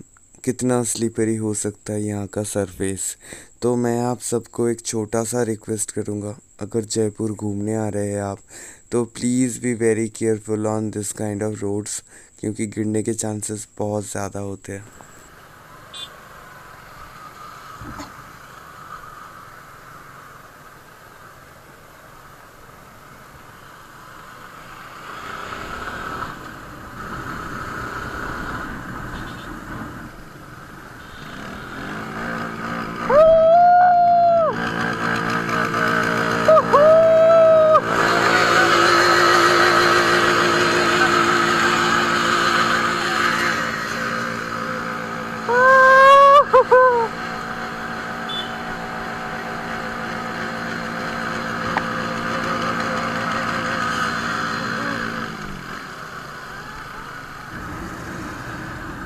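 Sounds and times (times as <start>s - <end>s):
motorcycle engines running: 14.8s - 59.0s
motorcycle horn honking: 15.9s - 16.2s, 29.1s - 29.6s, 31.0s - 32.0s, 48.2s - 48.8s.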